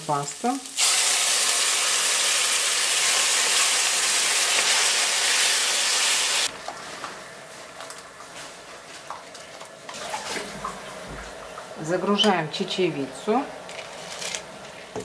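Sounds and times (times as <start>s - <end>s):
food frying in oil: 0.0s - 6.5s.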